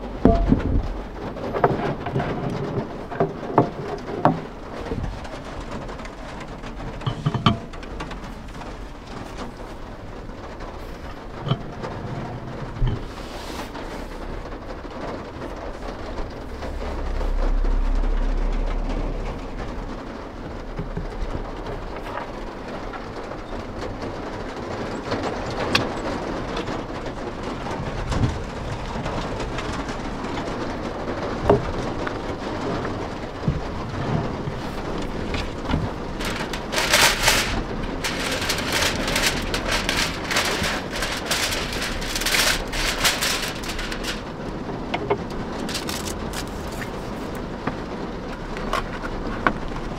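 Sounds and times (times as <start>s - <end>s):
low rumble: 0.0s - 3.4s, 14.2s - 23.0s
rain on a van roof: 0.0s - 49.9s
aluminium foil crinkling: 31.7s - 47.4s.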